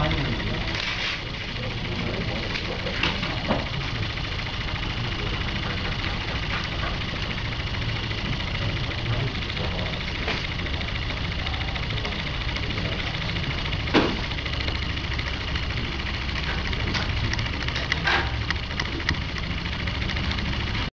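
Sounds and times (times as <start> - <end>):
electric motor whirring: 0.0 - 20.9
sharp click: 16.5 - 19.5.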